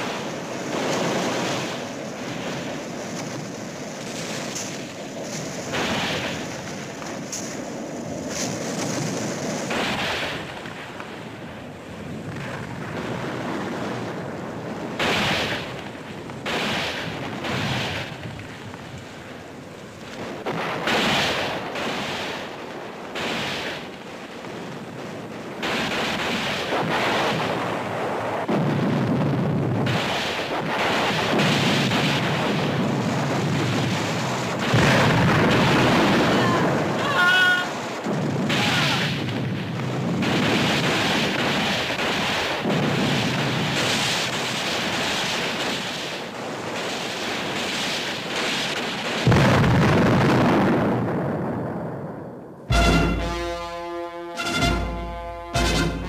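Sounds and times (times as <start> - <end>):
gunfire and explosions: 0.0 - 56.0
rushing noise of fire: 0.0 - 56.0
heavy low rumble: 52.7 - 56.0.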